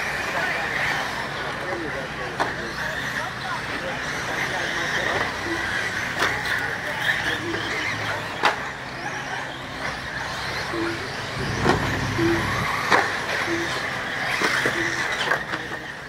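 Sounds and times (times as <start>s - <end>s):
electric motors high whine: 4.2s - 16.0s.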